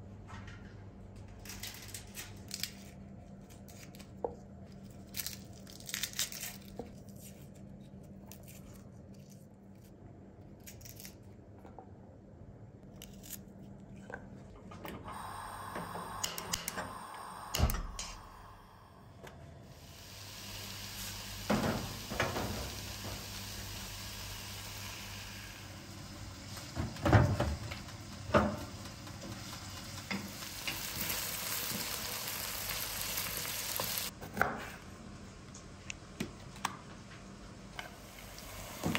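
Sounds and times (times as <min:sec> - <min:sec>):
knife clicking and scraping garlic: 0:13.0 - 0:13.5
onions sizzling in oil: 0:19.7 - 0:34.1, 0:38.0 - 0:38.9.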